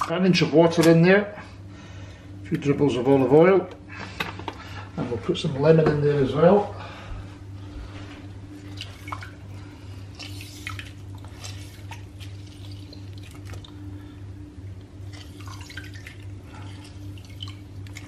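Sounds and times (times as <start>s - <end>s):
steady low hum: 0.0s - 18.0s
juice dripping into water: 8.6s - 18.0s.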